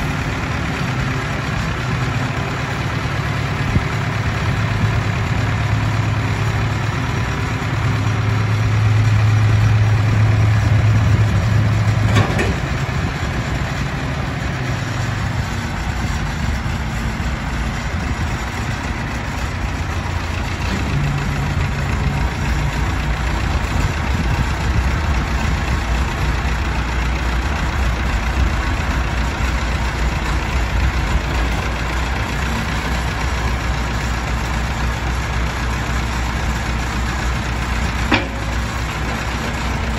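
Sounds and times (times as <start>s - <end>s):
tractor engine running: 0.0s - 39.9s
front loader bucket moving: 9.2s - 39.9s.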